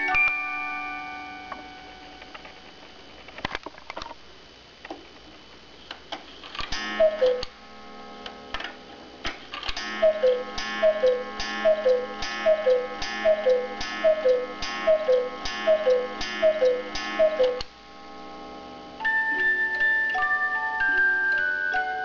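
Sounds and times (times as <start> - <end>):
clock ticking: 6.8 - 7.5, 9.8 - 17.7
cuckoo clock calling: 6.8 - 7.5, 9.8 - 17.7, 19.0 - 22.0.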